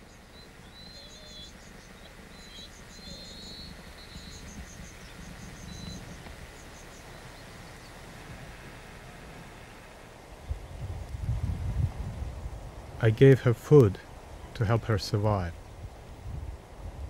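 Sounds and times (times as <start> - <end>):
rapid high ticking bird calls: 0.0 - 10.7
small birds chirping: 0.0 - 11.0
low steady rumble: 0.0 - 17.0.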